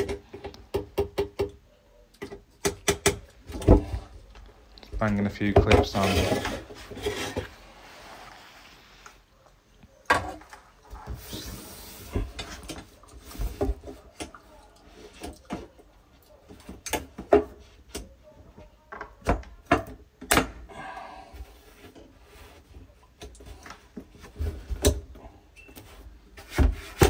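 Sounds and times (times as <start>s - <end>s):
handling and rubbing noise: 3.5s - 14.2s.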